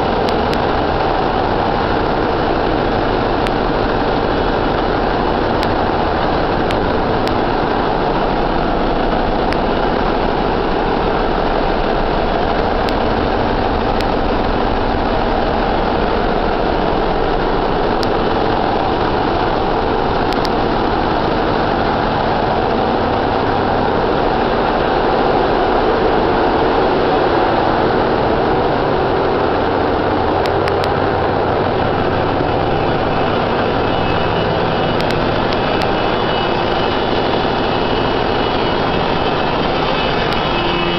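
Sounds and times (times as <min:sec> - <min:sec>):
engine room machinery hum: 0:00.0 - 0:40.9.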